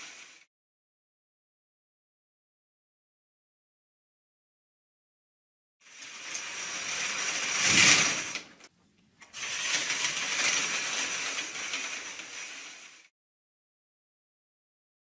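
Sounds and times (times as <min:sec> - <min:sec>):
stage curtain swishing: 0:00.0 - 0:00.5, 0:05.9 - 0:08.7, 0:09.3 - 0:13.1.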